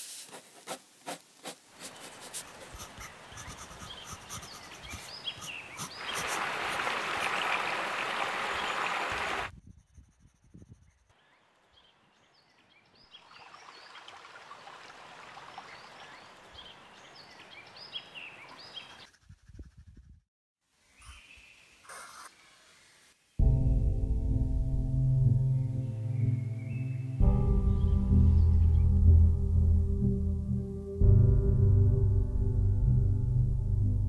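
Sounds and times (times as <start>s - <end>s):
pencil scratching on paper: 0.0s - 6.8s
small birds chirping: 1.9s - 6.4s, 15.5s - 19.6s, 20.9s - 23.1s.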